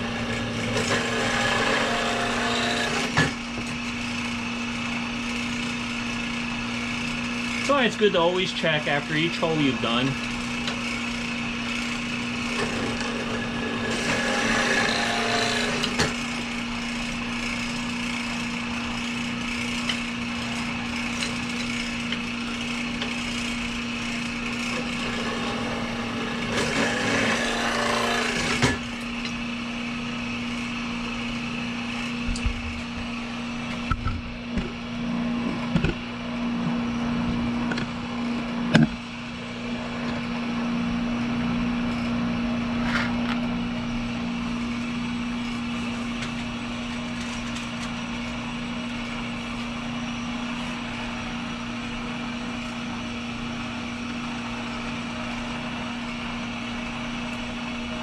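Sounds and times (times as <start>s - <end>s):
harsh cutting sound: 0.0s - 29.5s
drilling machine humming: 0.0s - 58.0s.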